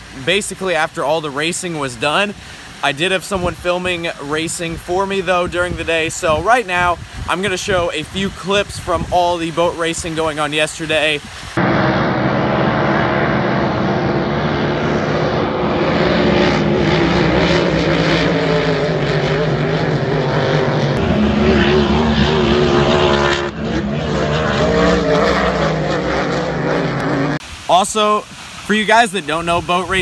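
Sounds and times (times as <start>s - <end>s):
racing boat engines droning: 11.0s - 27.4s.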